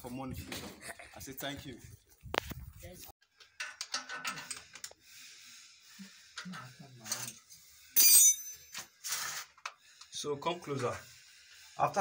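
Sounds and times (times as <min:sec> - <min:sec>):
metal clink: 0:08.0 - 0:08.9.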